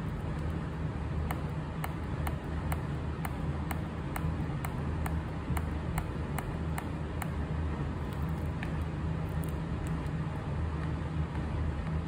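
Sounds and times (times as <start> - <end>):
light ticking: 0.0 - 7.4
air conditioner humming: 0.0 - 12.0.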